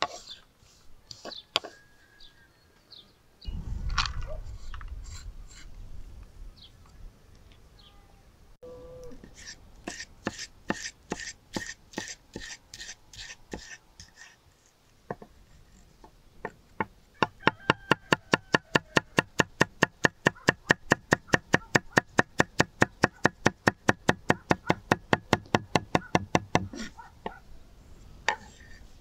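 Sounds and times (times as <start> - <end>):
knife chopping on wooden board: 19.2 - 26.9.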